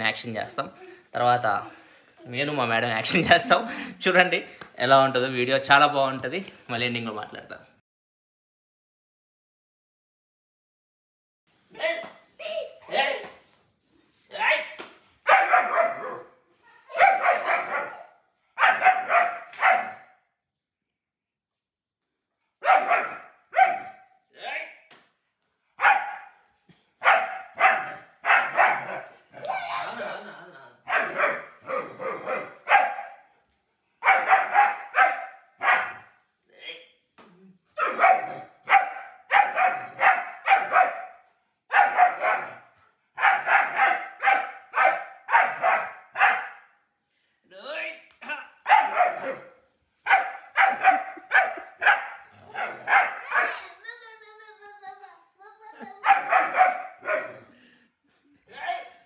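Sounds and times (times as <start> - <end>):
puppy barking: 15.2 - 20.2, 22.6 - 24.2, 25.8 - 26.4, 27.0 - 29.5, 30.8 - 33.3, 34.0 - 36.2, 37.8 - 46.7, 48.6 - 53.8, 55.9 - 57.5.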